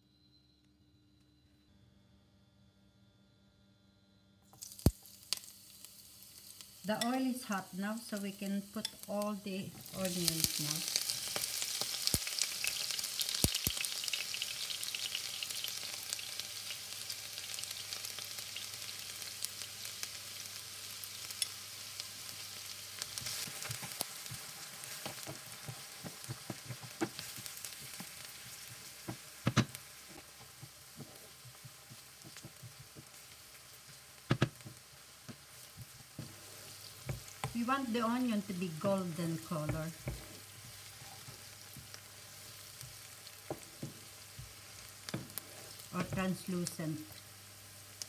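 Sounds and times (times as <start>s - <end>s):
onion sizzling in hot oil: 4.5s - 48.0s.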